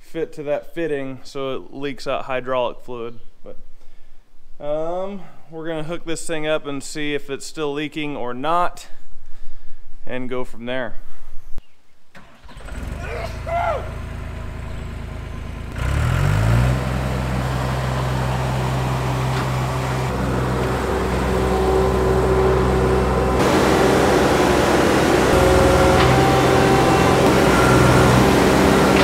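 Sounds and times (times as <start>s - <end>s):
skid steer diesel engine: 12.2s - 29.0s.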